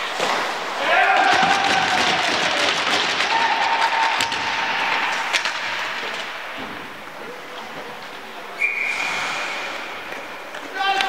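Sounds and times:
crowd clapping and cheering: 0.6s - 6.4s.

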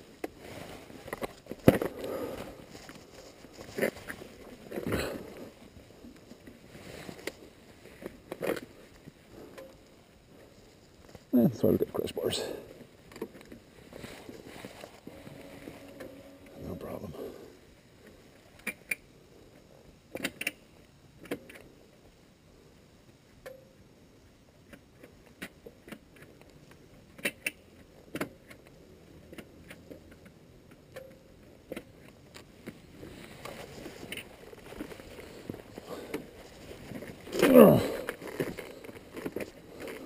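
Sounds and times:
rustling and scuffing: 0.3s - 5.5s, 32.5s - 37.4s.

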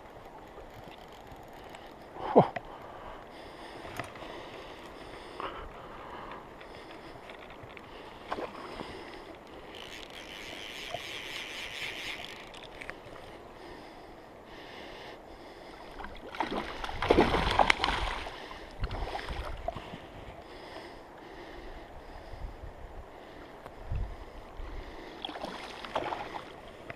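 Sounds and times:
fishing reel clicks and scrapes: 0.0s - 2.0s, 9.2s - 13.2s
river current rushing: 8.0s - 13.6s.

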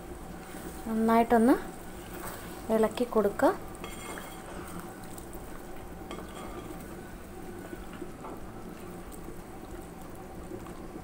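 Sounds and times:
gravy sloshing in a pot: 1.7s - 11.0s
spatula scraping metal pot: 3.8s - 4.8s, 6.1s - 6.8s.

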